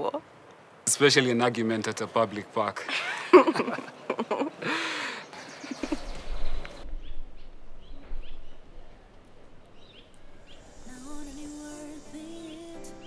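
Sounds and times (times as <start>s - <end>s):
bending calls: 9.7s - 13.0s
high bird chirps: 9.8s - 13.0s.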